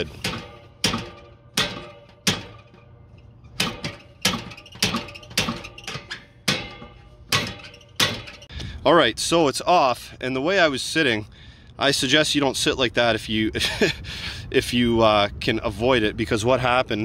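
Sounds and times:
slide hammer metallic strikes: 0:00.0 - 0:08.5.

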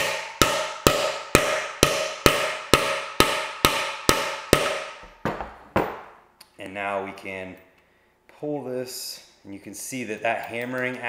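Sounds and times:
hammer striking metal: 0:00.0 - 0:06.2.

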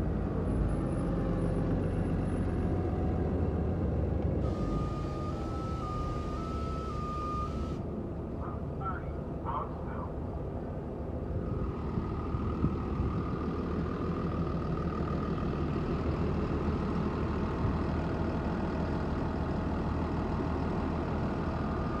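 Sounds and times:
bus engine running: 0:00.0 - 0:22.0
high-pitched whine: 0:04.4 - 0:07.8.

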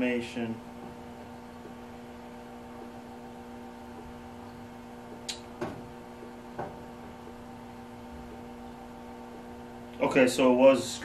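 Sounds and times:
conveyor dryer electric hum: 0:00.0 - 0:11.0.

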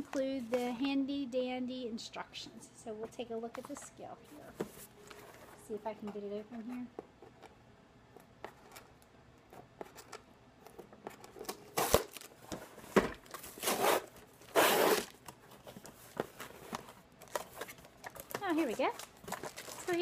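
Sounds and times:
tape ripping off: 0:11.4 - 0:12.3, 0:13.2 - 0:15.3.

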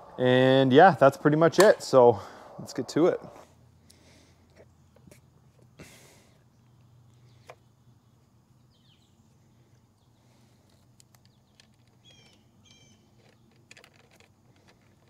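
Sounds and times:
bird chirping: 0:06.4 - 0:13.6.

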